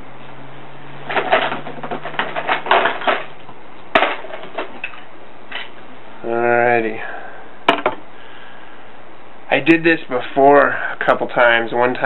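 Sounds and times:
scratchy handling clicks and clatters: 0:01.0 - 0:05.8.

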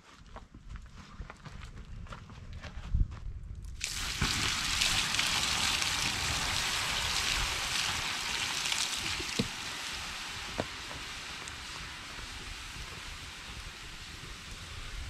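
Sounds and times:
campfire pops: 0:03.8 - 0:13.8
steam hissing from coals: 0:03.8 - 0:15.0.

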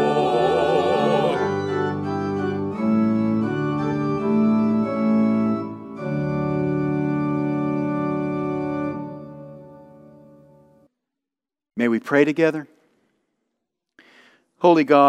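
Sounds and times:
organ playing hymn chords: 0:00.0 - 0:10.8.

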